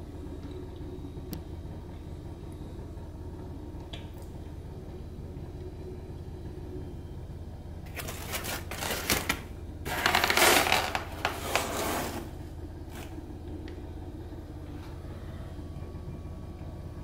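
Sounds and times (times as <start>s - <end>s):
low steady hum: 0.0s - 17.0s
cardboard box scraping and rustling: 7.9s - 13.1s.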